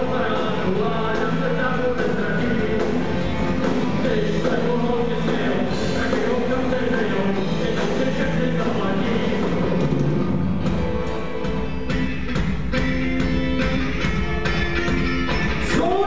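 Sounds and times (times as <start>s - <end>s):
live rock band playing: 0.0s - 16.0s.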